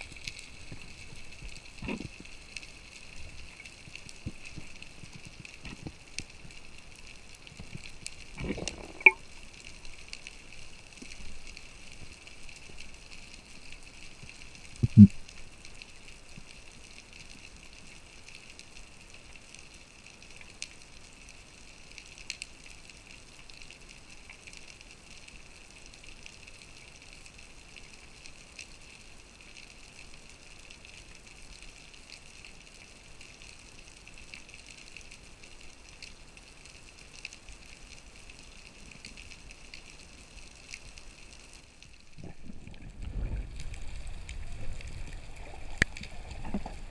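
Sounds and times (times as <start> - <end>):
faint underwater hiss: 0.0 - 19.5, 32.0 - 46.9.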